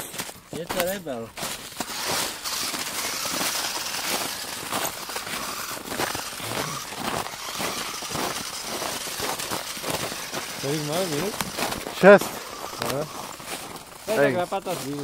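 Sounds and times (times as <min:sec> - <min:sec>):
footsteps crunching through snow: 0:00.0 - 0:15.0.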